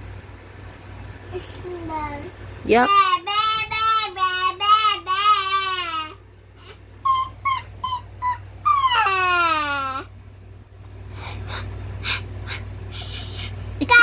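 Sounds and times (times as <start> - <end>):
child squeaking: 7.0 - 10.0
child wailing: 7.0 - 10.1.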